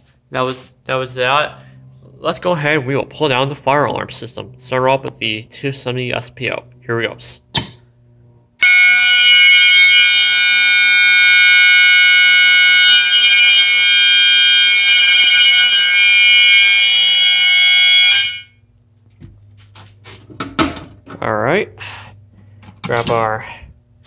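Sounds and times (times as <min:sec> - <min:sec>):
electronic fire alarm sounding: 0:08.6 - 0:18.7.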